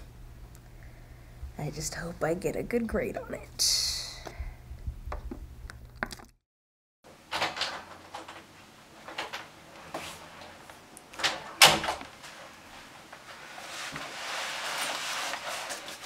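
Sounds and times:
scraping and handling sounds: 7.4s - 16.0s
wooden door opening: 11.1s - 12.1s
door shutting with sharp knocks: 11.2s - 12.1s.

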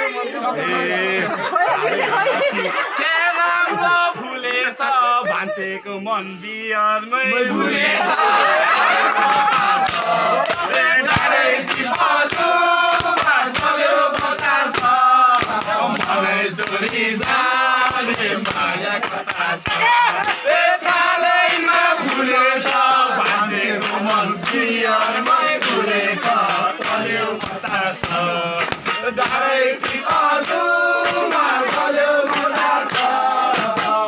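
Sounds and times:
men singing together: 0.0s - 34.0s
struck beats: 9.4s - 34.0s.

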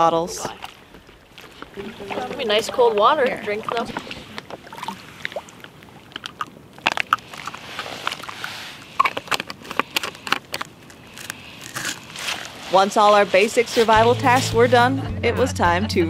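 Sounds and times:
water trickling: 0.0s - 14.8s
plastic pouch crinkling: 6.9s - 13.9s.

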